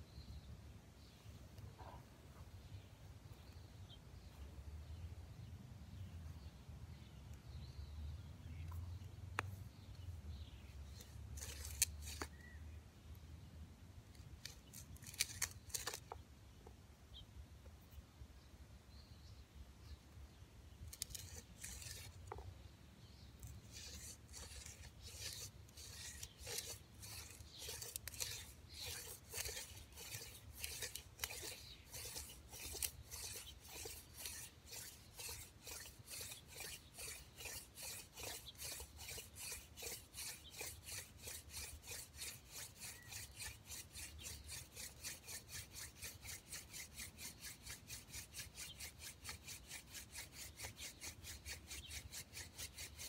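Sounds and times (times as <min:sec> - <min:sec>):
wooden spindle grinding in notch: 0:10.8 - 0:12.4, 0:14.1 - 0:16.2, 0:20.9 - 0:22.5, 0:23.4 - 0:53.0.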